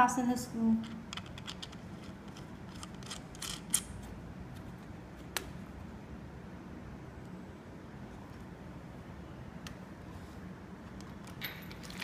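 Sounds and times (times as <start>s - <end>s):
fingers turning small screw: 0.8s - 3.9s.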